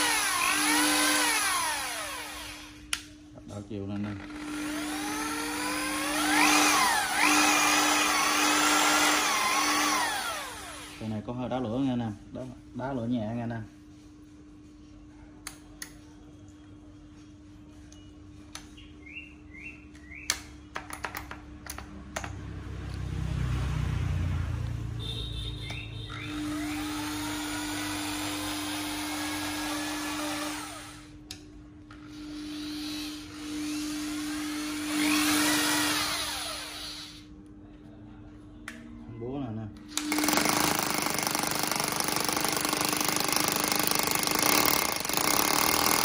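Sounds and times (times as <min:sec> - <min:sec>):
hammer drill motor whining: 0:00.0 - 0:02.8, 0:04.0 - 0:11.3, 0:26.1 - 0:31.1, 0:32.0 - 0:37.3, 0:39.9 - 0:46.0.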